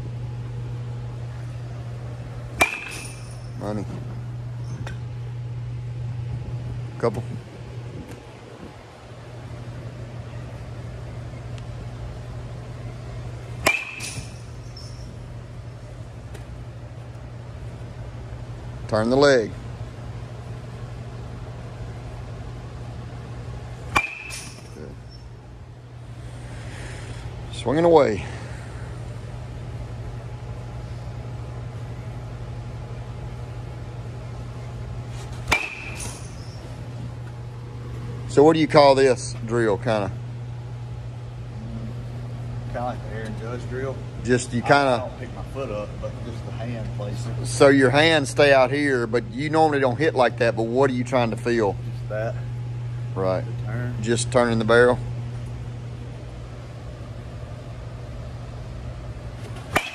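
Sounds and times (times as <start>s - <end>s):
ventilation fans humming: 0.0s - 59.9s
metal bat hitting ball: 2.6s - 3.5s, 13.6s - 14.6s, 23.9s - 24.8s, 35.5s - 36.6s.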